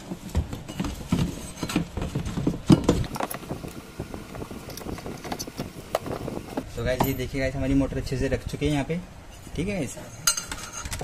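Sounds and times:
knocks and rattles of motor: 0.1s - 6.7s
wires brushing plastic: 1.0s - 6.7s.

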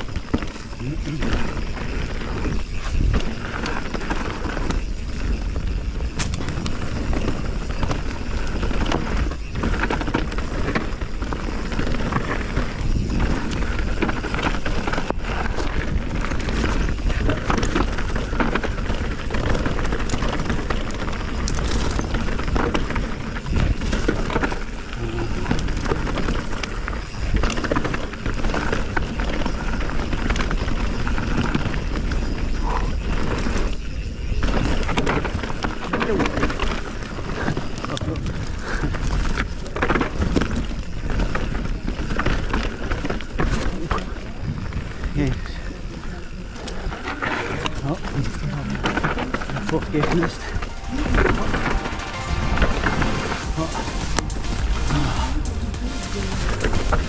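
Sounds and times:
wind on microphone: 0.0s - 27.7s
bike clicks and rattles: 0.0s - 52.2s
tyres on dirt and leaves: 0.0s - 57.0s.

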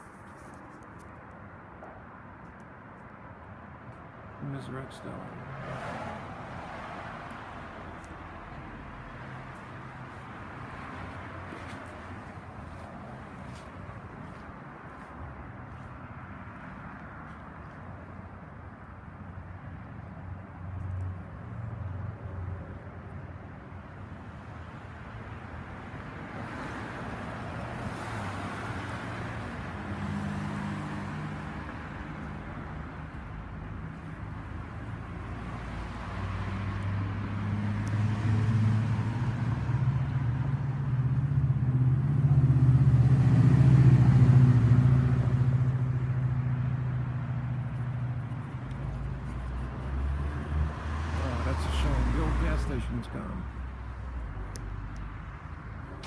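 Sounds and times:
road noise: 0.0s - 56.0s
vehicle engine passing: 34.5s - 53.4s.

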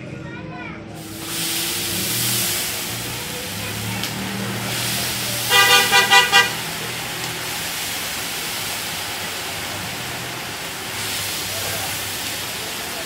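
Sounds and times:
meat sizzling in hot fat: 1.0s - 13.0s
vehicle horn honking: 5.4s - 6.9s.

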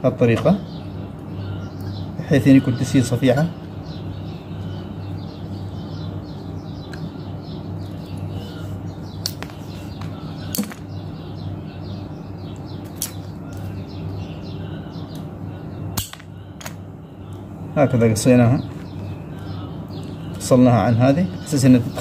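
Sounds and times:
birds chirping: 0.0s - 22.0s
pliers snipping metal: 16.0s - 16.8s.

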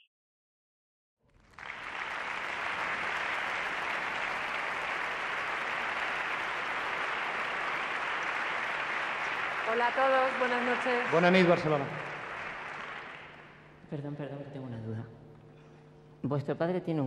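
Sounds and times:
audience applauding: 1.3s - 13.8s.

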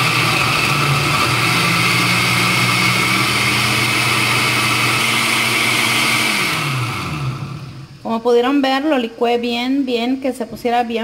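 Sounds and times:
blender motor running: 0.0s - 8.0s.

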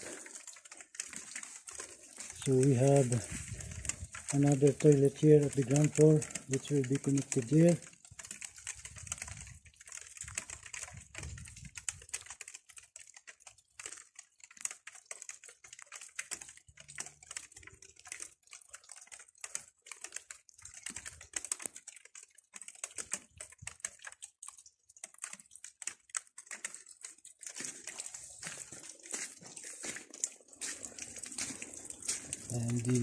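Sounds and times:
raindrops tapping: 0.0s - 33.0s.

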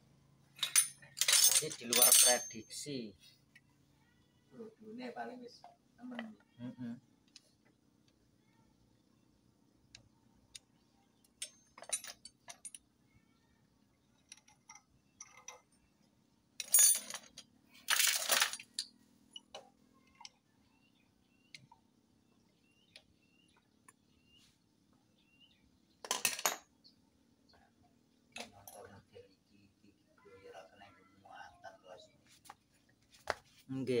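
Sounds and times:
metal parts and tools clinking: 0.5s - 2.8s, 11.2s - 12.8s, 14.2s - 15.8s, 16.6s - 20.4s, 26.0s - 26.7s.

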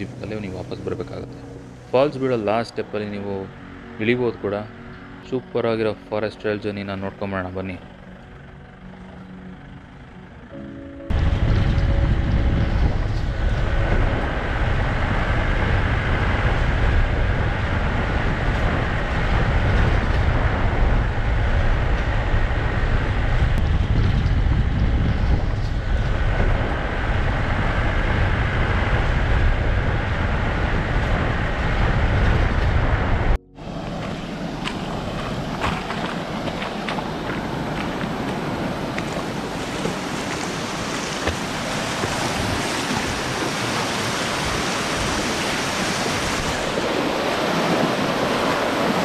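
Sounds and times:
train rumbling on rails: 7.2s - 49.0s
wind-like rush: 11.1s - 49.0s.

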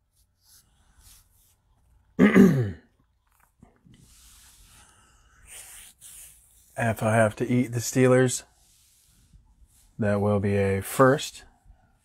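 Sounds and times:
man clearing throat: 2.2s - 3.0s.

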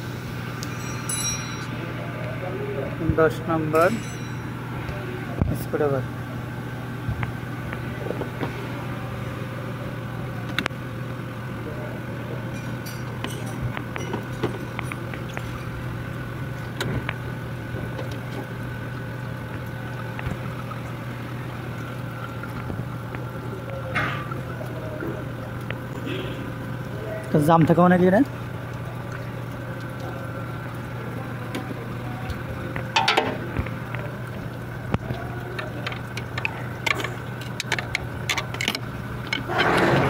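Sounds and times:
low mechanical hum: 0.0s - 40.0s
hand tools clicking and tapping: 35.6s - 39.4s.

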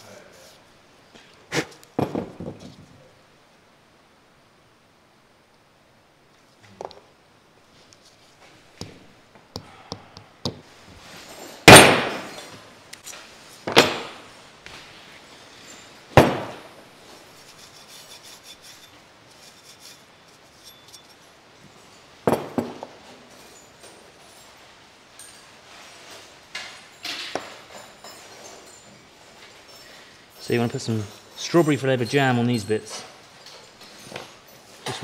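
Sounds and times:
metal parts knocked on workbench: 22.3s - 23.0s.

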